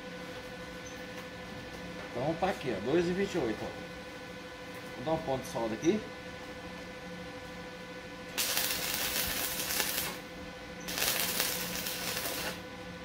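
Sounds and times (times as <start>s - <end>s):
electric arc welding: 8.4s - 10.2s, 10.9s - 12.6s.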